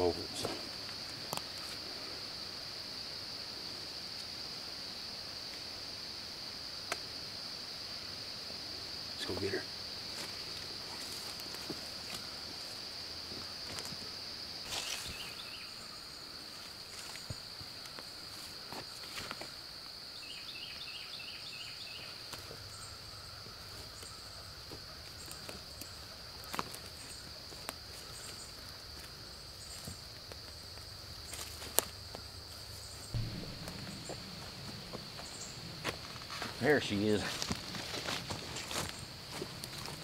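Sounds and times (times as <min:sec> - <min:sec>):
insect drone: 0:00.0 - 0:40.0
sharp crack: 0:33.1 - 0:38.2
dull thump: 0:33.2 - 0:36.6.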